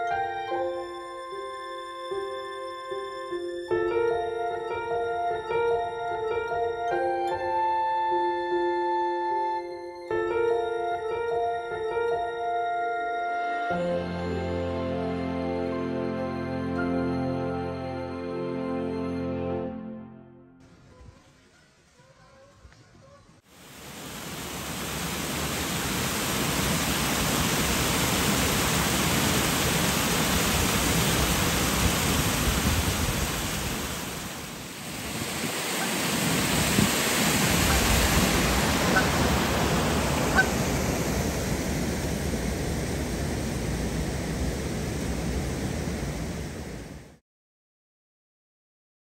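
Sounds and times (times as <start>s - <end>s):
water rushing over a weir: 23.5s - 47.0s.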